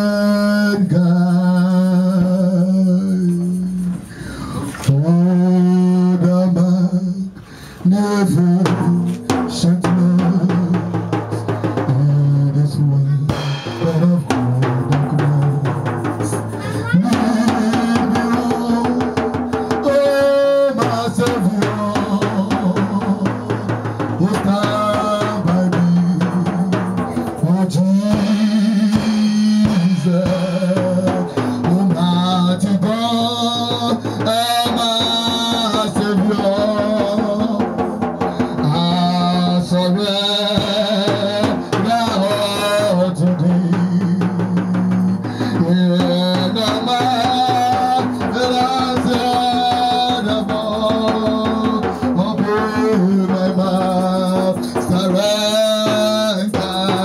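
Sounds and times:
drum kit beat: 0:00.0 - 0:57.0
man singing into a microphone: 0:00.0 - 0:57.0
bass line: 0:07.8 - 0:57.0.

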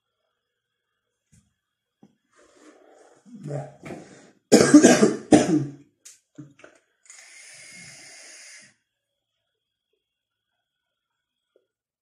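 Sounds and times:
man coughing: 0:04.5 - 0:05.8
vape hissing: 0:07.1 - 0:08.7.

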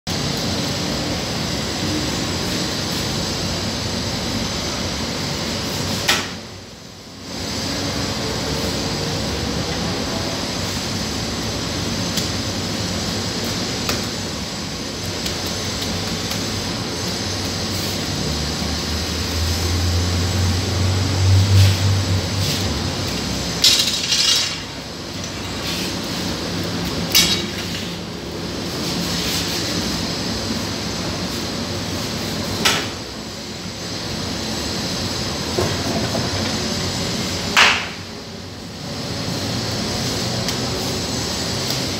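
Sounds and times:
steady machine hum: 0:00.1 - 0:41.9.

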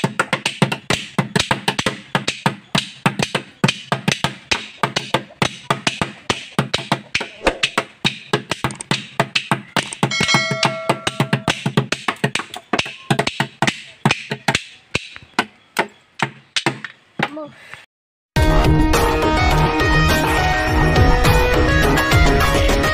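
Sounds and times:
plastic can beaten with sticks: 0:00.0 - 0:10.2, 0:11.2 - 0:17.4
steady high tone: 0:10.1 - 0:11.5.

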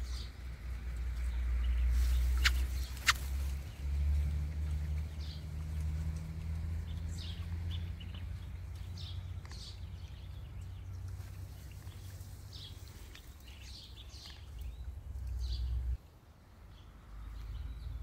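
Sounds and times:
blackbird alarm calls: 0:01.6 - 0:03.7.

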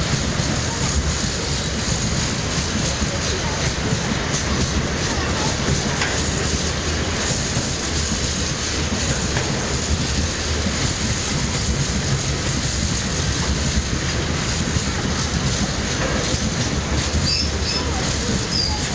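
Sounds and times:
train wheels rolling on rails: 0:00.0 - 0:18.9.

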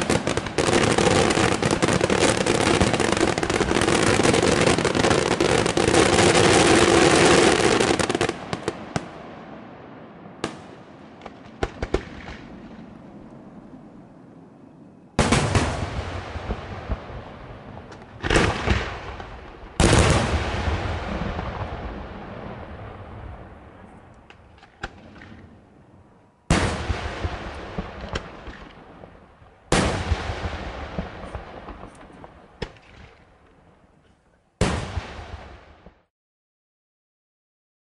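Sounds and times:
fireworks booming: 0:00.0 - 0:13.0, 0:15.2 - 0:25.9, 0:26.5 - 0:33.8, 0:34.6 - 0:36.1
rolling echo: 0:00.0 - 0:36.1
small firework cracks: 0:10.4 - 0:12.9, 0:26.6 - 0:33.6.

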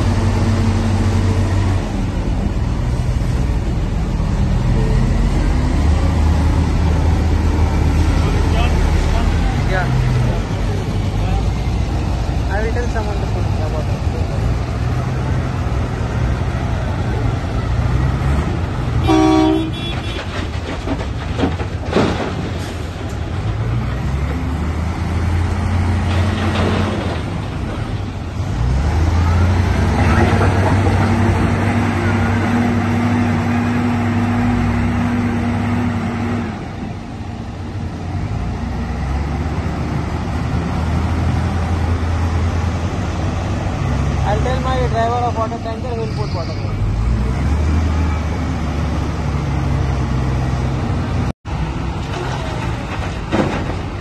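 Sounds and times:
diesel wheel loaders running: 0:00.0 - 0:54.0
vehicle horn toot: 0:19.0 - 0:20.3
dirt dumping into truck: 0:19.4 - 0:29.2.

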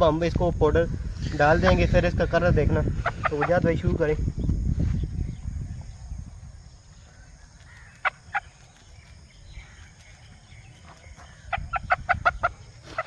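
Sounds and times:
hen clucking: 0:02.7 - 0:03.8, 0:07.8 - 0:08.8, 0:10.8 - 0:13.0.

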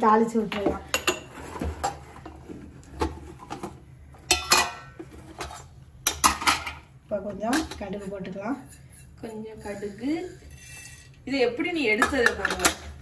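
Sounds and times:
metal utensils and dishes clinking: 0:03.3 - 0:11.2, 0:11.8 - 0:13.0.

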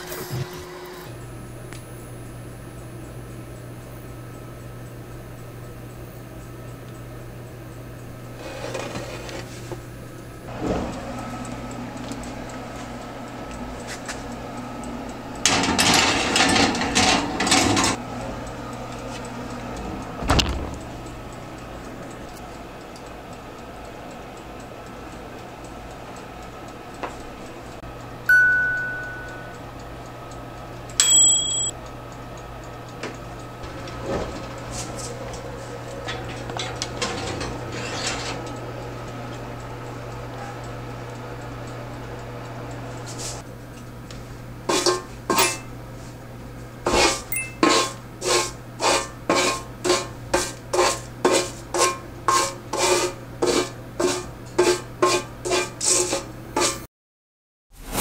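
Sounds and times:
oven door shutting: 0:08.4 - 0:09.8, 0:10.5 - 0:11.6, 0:15.4 - 0:18.0, 0:19.8 - 0:21.4, 0:33.6 - 0:38.6
baking tray clattering on rack: 0:15.5 - 0:18.0, 0:36.0 - 0:38.5.

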